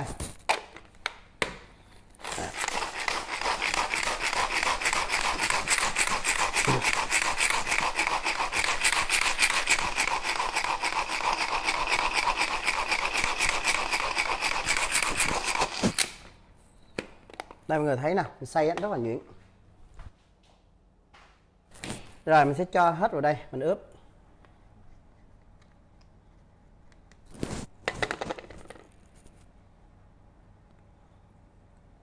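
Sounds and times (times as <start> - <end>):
pull-cord food chopper whirring: 2.2 - 16.2.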